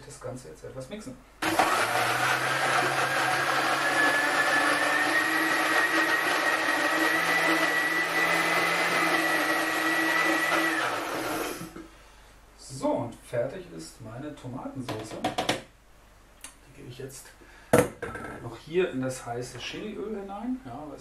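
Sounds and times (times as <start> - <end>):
blender motor whine: 1.4 - 11.8.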